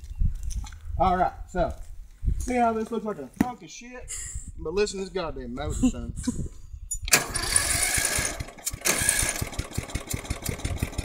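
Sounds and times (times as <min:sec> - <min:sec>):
riding lawn mower engine running: 0:07.1 - 0:11.0.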